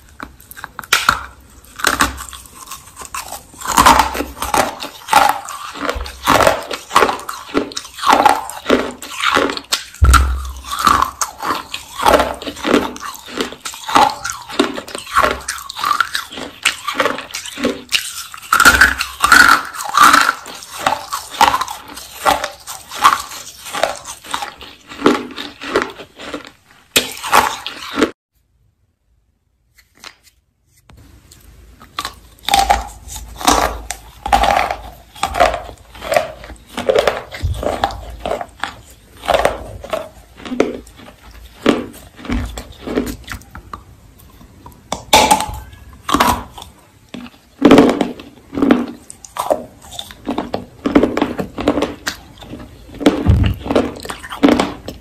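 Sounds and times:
crisp chewing crunches: 0:00.0 - 0:28.2, 0:31.2 - 0:55.0.

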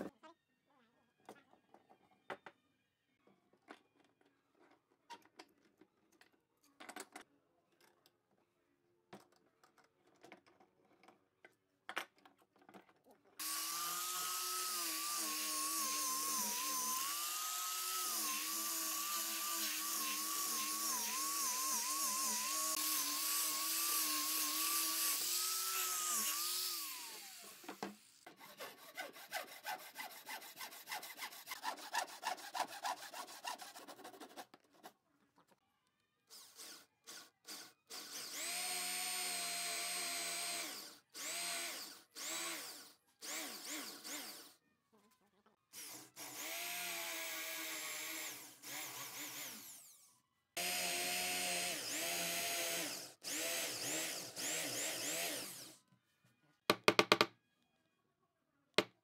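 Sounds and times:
angle grinder sanding wood: 0:13.4 - 0:27.7, 0:28.3 - 0:34.3
electric drill boring into wood: 0:13.4 - 0:28.1, 0:36.3 - 0:44.6, 0:45.8 - 0:55.8
rasping strokes: 0:28.2 - 0:34.9.

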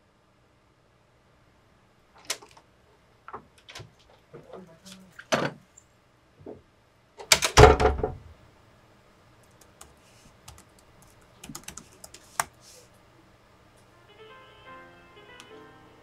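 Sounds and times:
laptop keyboard typing: 0:09.4 - 0:12.6.

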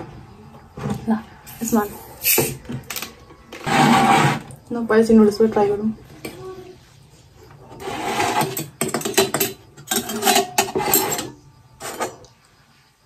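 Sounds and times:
forks scraping steel plates: 0:07.8 - 0:12.2.

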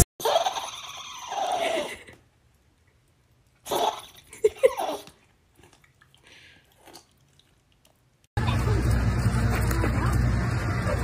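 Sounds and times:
small dog yelping and grumbling: 0:00.2 - 0:01.9.

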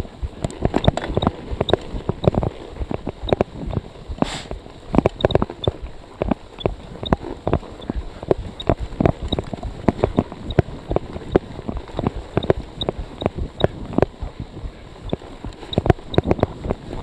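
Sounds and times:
bicycle rattling over rough ground: 0:00.0 - 0:17.0
brief hiss: 0:04.2 - 0:04.5.

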